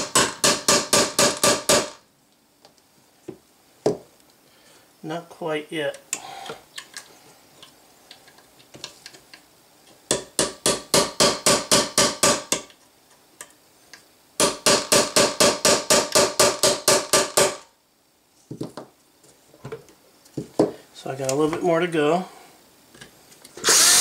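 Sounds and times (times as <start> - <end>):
hammer tapping metal punch: 10.1 - 12.7.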